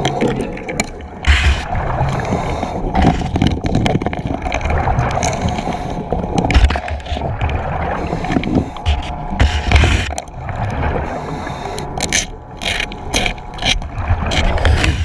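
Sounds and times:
underwater air bubbling: 0:00.0 - 0:15.0.

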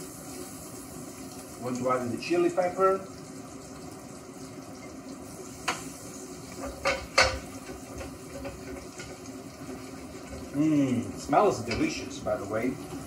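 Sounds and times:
frying sizzle in oil: 0:00.0 - 0:13.0.

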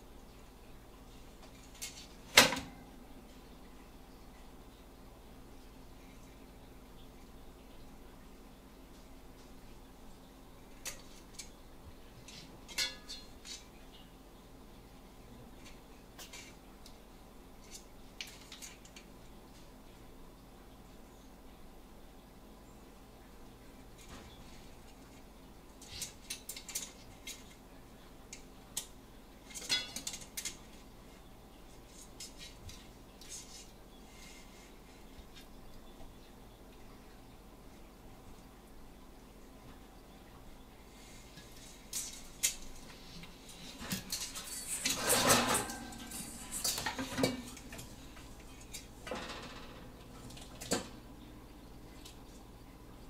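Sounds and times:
metal pots and pans clattering: 0:12.3 - 0:13.7, 0:29.5 - 0:30.6, 0:43.8 - 0:48.0.

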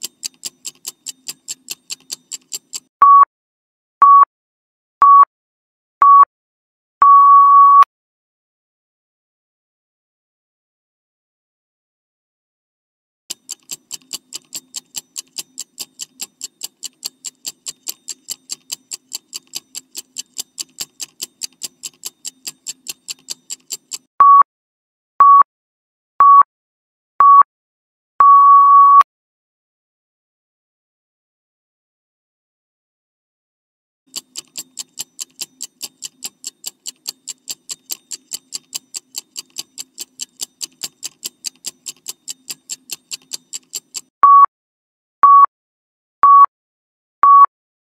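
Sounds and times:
clock ticking timer: 0:00.0 - 0:03.2, 0:13.3 - 0:24.4, 0:34.1 - 0:44.5.

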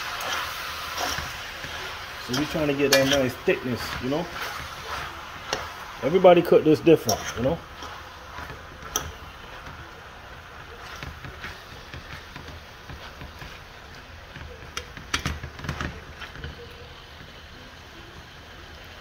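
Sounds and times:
pot sizzling: 0:00.0 - 0:19.0
spoon scraping metal pot: 0:00.2 - 0:05.8, 0:07.0 - 0:09.7.

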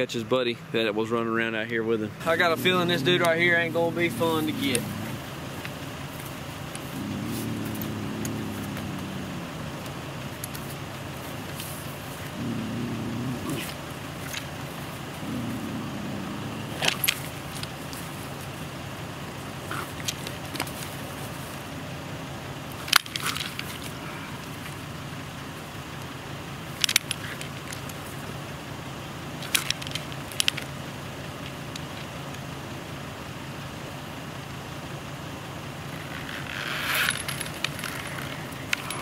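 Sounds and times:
low engine hum: 0:00.0 - 0:39.0
metal chain rattling and clicking: 0:36.8 - 0:39.0.

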